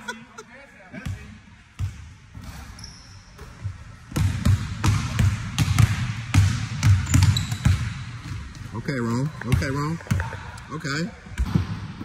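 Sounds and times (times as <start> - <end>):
basketball bouncing on wooden floor: 4.1 - 8.6.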